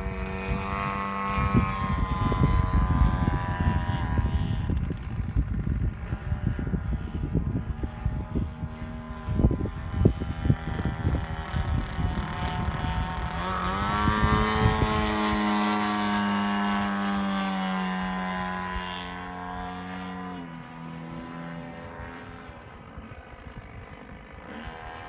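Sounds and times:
propeller aircraft engine overhead: 0:00.0 - 0:25.0
wind buffeting microphone: 0:00.0 - 0:25.0.

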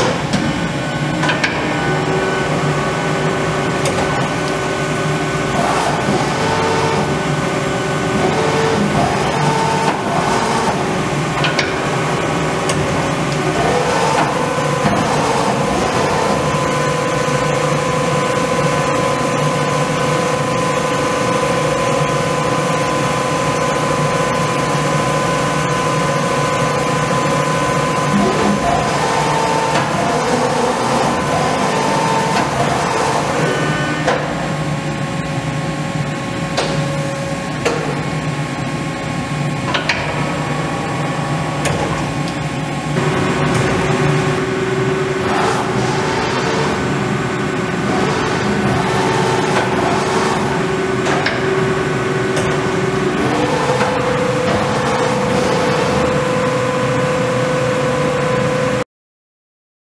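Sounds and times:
lathe machine whine: 0:00.0 - 0:58.8.

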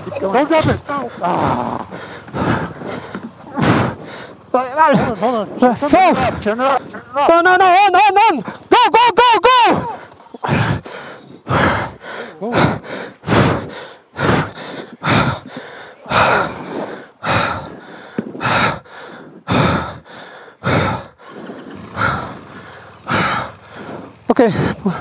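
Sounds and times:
person breathing hard: 0:00.9 - 0:05.4, 0:09.8 - 0:25.0.

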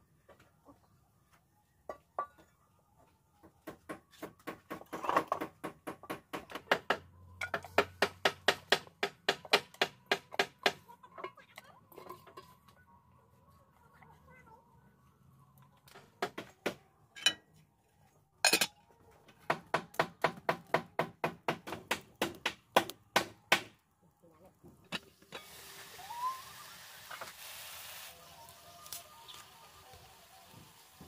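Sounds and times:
steel cookware clinking: 0:17.2 - 0:17.4, 0:18.4 - 0:18.7.

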